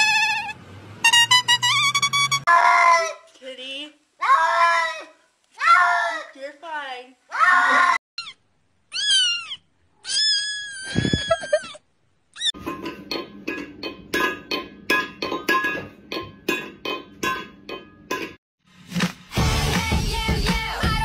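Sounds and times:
kitten meowing: 0:08.2 - 0:11.8
rhythmic clinking beat: 0:12.6 - 0:18.4.

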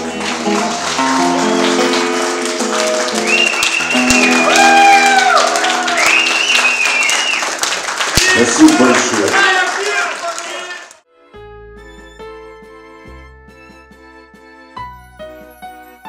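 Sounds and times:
music with sustained chords: 0:00.0 - 0:04.6
audience clapping: 0:00.0 - 0:11.0.

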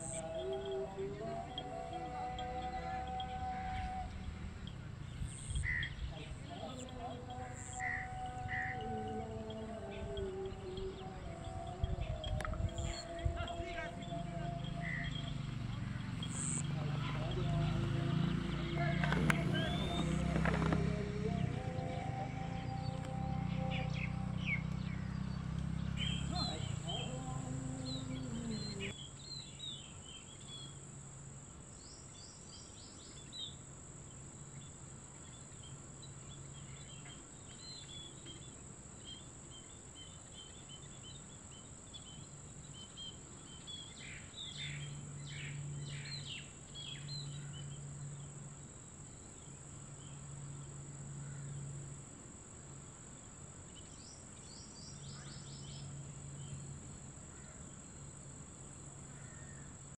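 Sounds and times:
high-pitched insect drone: 0:00.0 - 0:25.3, 0:25.9 - 0:29.0
birds chirping: 0:00.0 - 0:59.9
low hum: 0:06.4 - 0:29.0.

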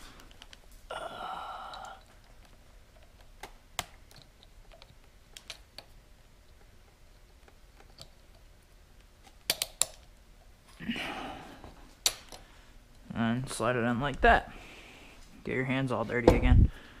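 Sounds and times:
metallic clicks of pliers: 0:09.5 - 0:10.0.

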